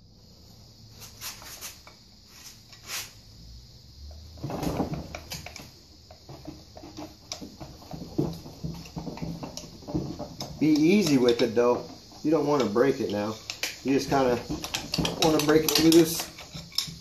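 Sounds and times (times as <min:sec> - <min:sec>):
screwdriver scraping metal: 0:13.3 - 0:17.0.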